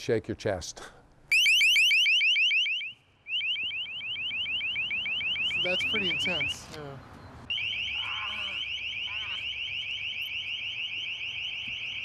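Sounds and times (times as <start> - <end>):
loud warbling deterrent tone: 7.5 - 11.3.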